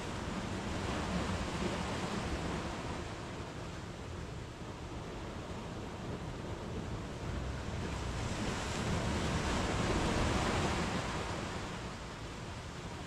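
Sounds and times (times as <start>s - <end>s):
sea waves breaking: 0.0s - 13.0s.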